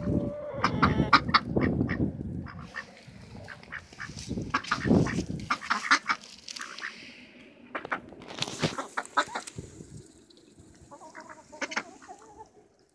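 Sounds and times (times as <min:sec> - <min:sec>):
poultry calling: 0:00.0 - 0:07.0, 0:10.9 - 0:12.6.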